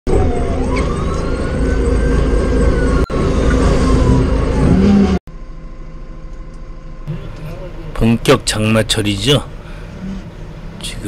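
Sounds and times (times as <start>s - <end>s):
siren wailing: 0.1s - 5.2s
heavy low rumble: 1.6s - 11.0s.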